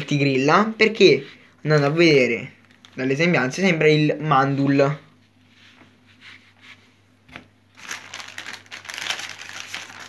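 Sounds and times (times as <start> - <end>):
foil packet crinkling: 7.7 - 10.0.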